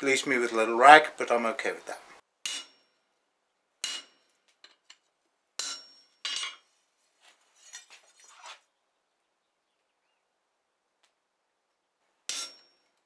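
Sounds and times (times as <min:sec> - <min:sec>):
hammer striking chisel on metal: 0:02.4 - 0:03.0, 0:03.8 - 0:04.3, 0:05.6 - 0:06.6, 0:12.3 - 0:12.9.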